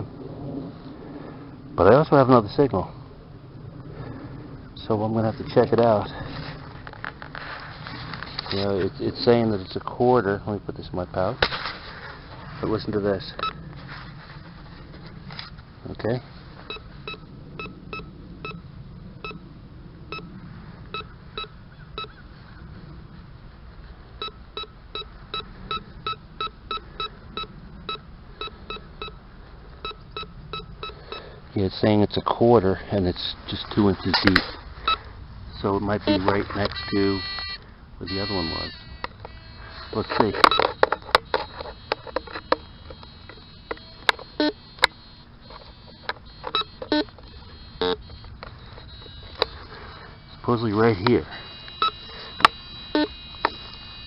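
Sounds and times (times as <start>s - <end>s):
metal detector beeping: 16.7s - 18.6s, 20.1s - 20.3s, 20.9s - 22.1s, 24.2s - 29.2s, 29.8s - 31.4s, 34.1s - 35.1s, 36.0s - 54.0s.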